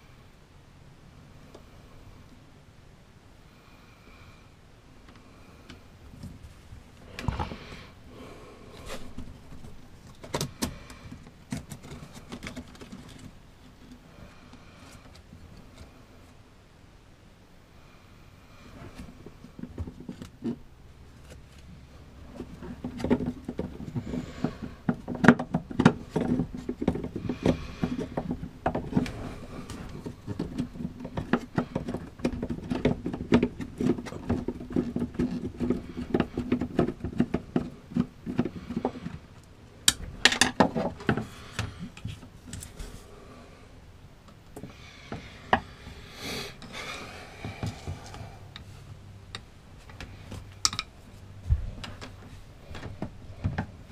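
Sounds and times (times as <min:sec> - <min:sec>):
low steady hum: 0:00.0 - 0:53.9.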